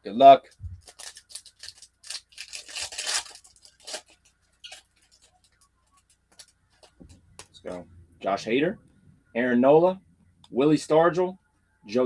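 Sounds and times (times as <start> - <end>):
cards rustling: 0.5 - 7.8
wrapper tearing and crinkling: 0.8 - 5.6.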